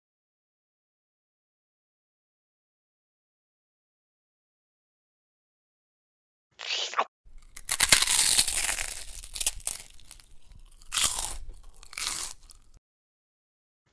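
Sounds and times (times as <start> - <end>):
rough crunching and crackling: 6.6 - 12.8.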